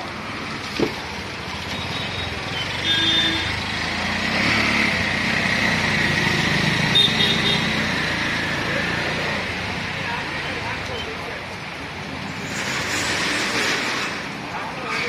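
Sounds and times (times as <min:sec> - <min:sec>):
motorcycle passing: 0:03.6 - 0:09.6
tyres hissing on wet road: 0:12.0 - 0:14.9.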